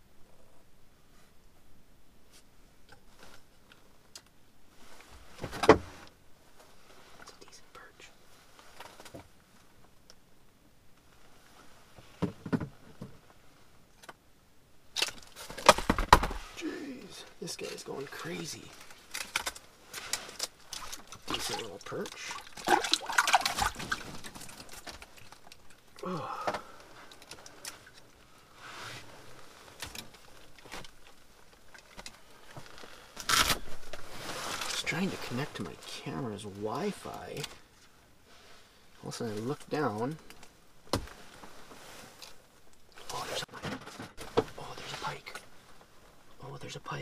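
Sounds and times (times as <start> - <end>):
handling rustle: 15.1 - 26.0, 26.6 - 38.6.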